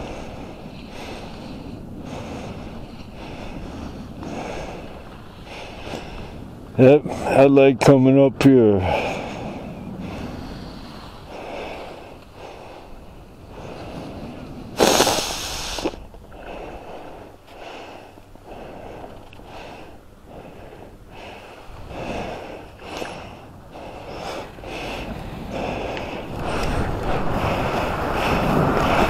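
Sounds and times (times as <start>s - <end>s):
skis scraping on snow: 13.7s - 16.0s, 24.1s - 29.0s.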